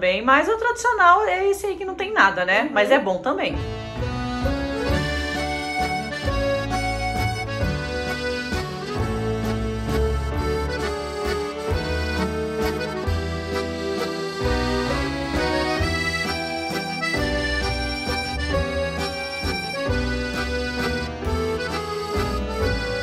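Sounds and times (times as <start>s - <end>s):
background music with pulsing bass: 3.6s - 23.0s.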